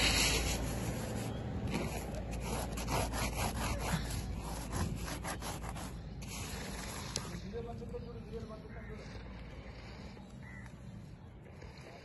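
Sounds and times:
hand scraping frost: 0.0 - 7.6.

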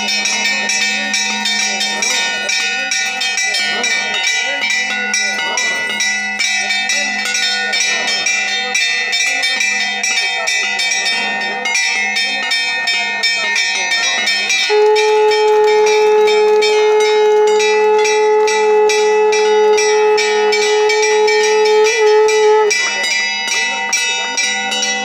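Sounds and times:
temple bells ringing rapidly: 0.0 - 25.0
conch shell long blown note: 14.4 - 25.0.

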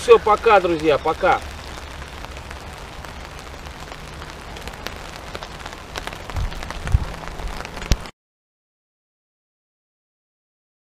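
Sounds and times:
rain on a tarp: 0.0 - 8.1.

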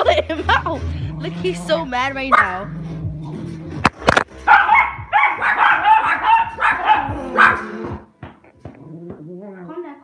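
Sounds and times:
dog barking: 2.3 - 2.6, 4.5 - 7.9.

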